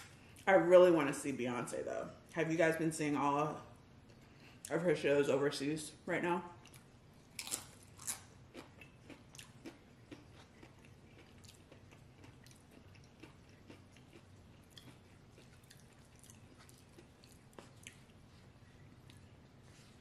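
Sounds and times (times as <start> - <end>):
chewing tortilla chip crunches: 6.6 - 18.3.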